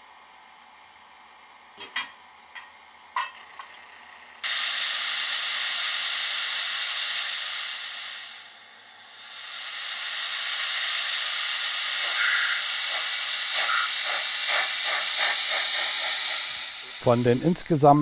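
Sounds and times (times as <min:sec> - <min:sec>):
model locomotive exhaust chuffs: 0:04.4 - 0:18.0
model locomotive steam hiss: 0:04.4 - 0:18.0.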